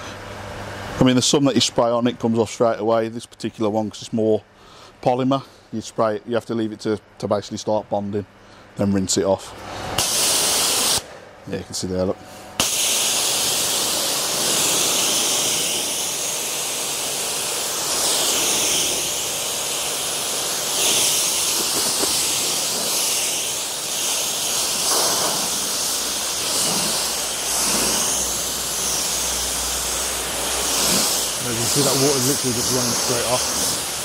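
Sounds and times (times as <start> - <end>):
water spray hissing on a car: 10.0 - 11.0, 12.6 - 34.0.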